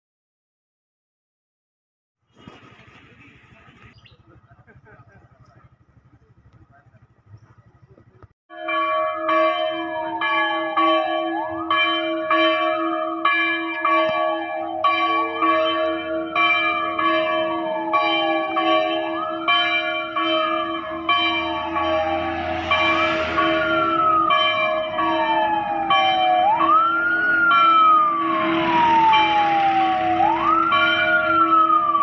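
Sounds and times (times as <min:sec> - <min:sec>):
church bell ringing: 0:08.5 - 0:32.0
siren wailing: 0:10.1 - 0:11.8, 0:14.1 - 0:32.0.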